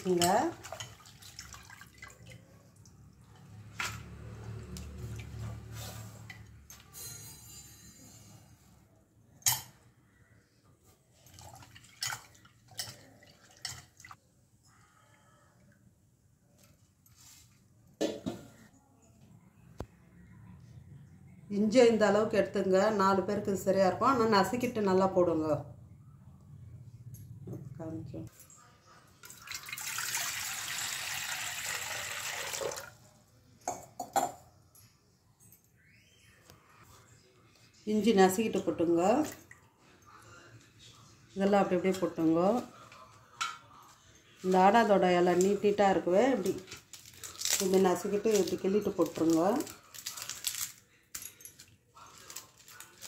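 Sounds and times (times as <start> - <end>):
water sloshing in a pot: 0.0 - 6.9, 10.8 - 14.2, 28.3 - 34.3, 38.4 - 40.4
water pouring into metal pot: 29.2 - 33.0.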